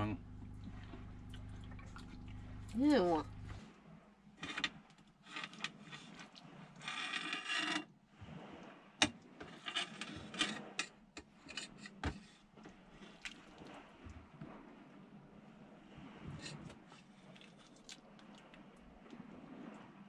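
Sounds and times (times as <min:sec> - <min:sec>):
wooden spoon scraping metal pot: 0:04.4 - 0:07.9, 0:09.4 - 0:12.4.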